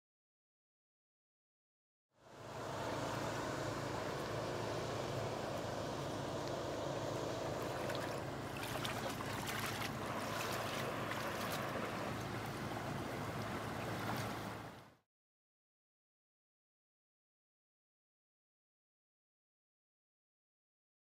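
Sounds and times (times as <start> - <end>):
boat engine running: 2.2 - 15.0
water noise: 2.2 - 15.0.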